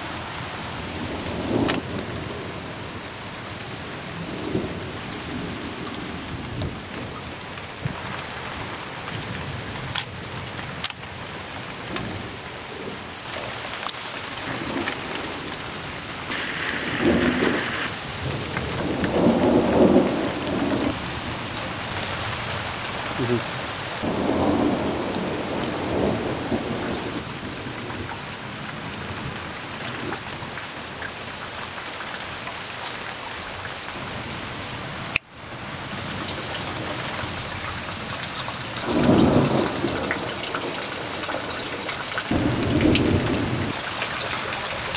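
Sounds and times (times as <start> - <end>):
steady rain: 0.0 - 44.9
rolling thunder: 14.3 - 22.8, 24.0 - 29.6, 38.8 - 41.6, 42.3 - 44.0.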